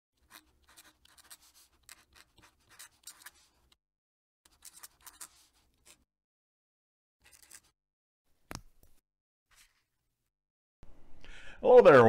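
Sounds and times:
pen nib scratching on paper: 0.2 - 3.8, 4.5 - 6.1.

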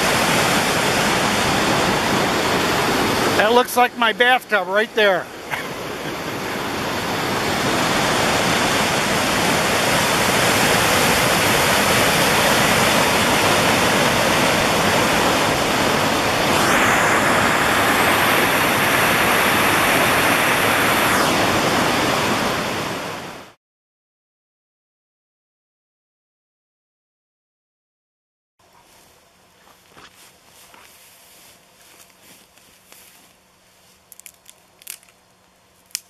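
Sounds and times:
river water rushing over rocks: 0.0 - 21.1.

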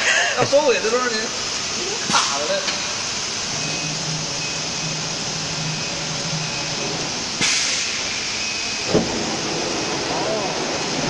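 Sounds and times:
compressed air hiss: 7.4 - 8.4.

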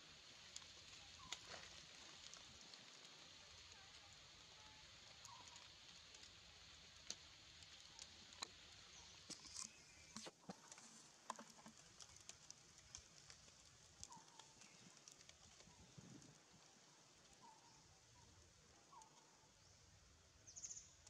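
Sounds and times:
faint outdoor hiss: 0.0 - 21.0
soft clicks and ticks: 7.0 - 19.4.

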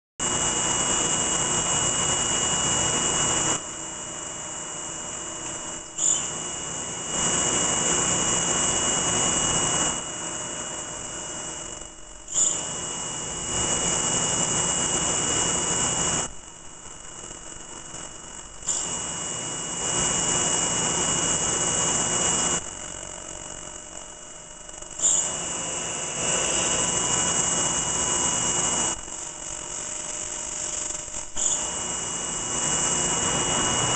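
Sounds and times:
drill whining: 0.2 - 16.3, 18.1 - 24.2, 24.8 - 33.9
sharp machine clicks: 12.3 - 12.6, 18.6 - 18.9.

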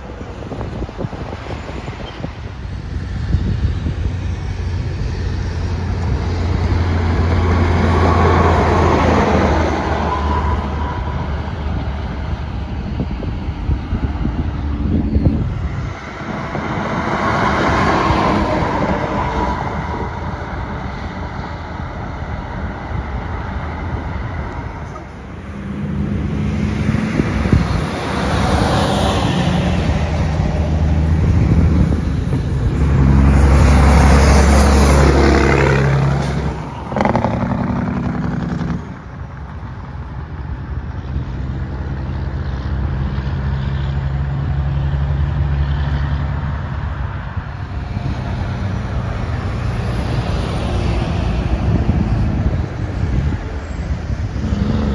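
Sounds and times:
trucks driving past: 0.0 - 54.9
tyres rushing on pavement: 0.0 - 54.9.

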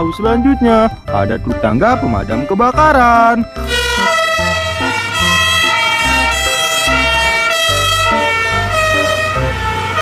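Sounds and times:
fire engine siren: 3.6 - 10.0.

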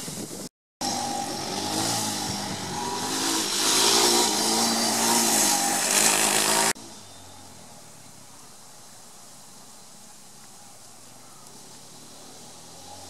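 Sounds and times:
faint outdoor background: 0.0 - 13.0
quad bike engine revving: 0.8 - 6.9, 11.8 - 13.0.

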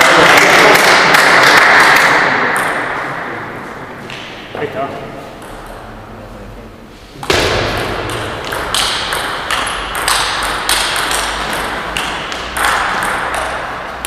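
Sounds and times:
table tennis ball hits: 0.0 - 3.1, 7.2 - 14.0.

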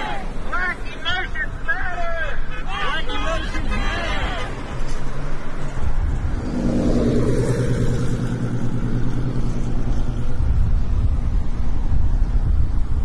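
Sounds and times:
steady low rumble: 3.4 - 13.0
vehicle engine passing by: 5.2 - 12.8.

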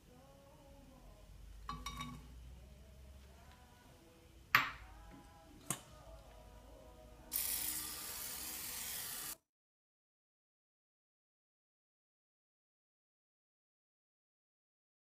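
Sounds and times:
aerosol spray hissing: 7.3 - 9.4.

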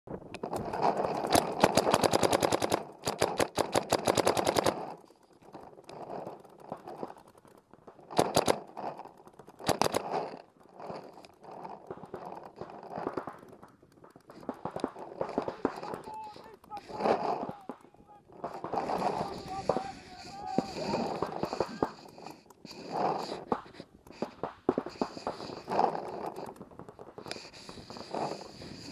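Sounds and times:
distant paintball volleys: 0.1 - 28.9
paintball marker firing: 0.4 - 28.9.

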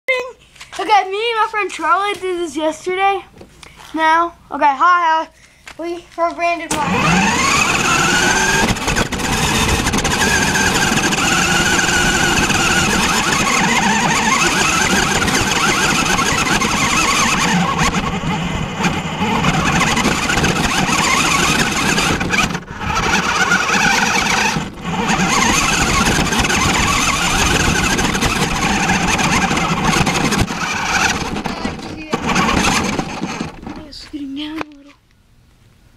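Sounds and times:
toy car motor whining: 6.7 - 33.8.

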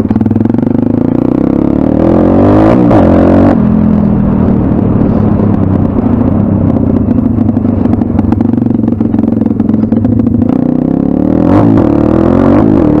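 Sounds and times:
motorbike engine running: 0.0 - 13.0
constant fast rattle: 4.0 - 10.8.

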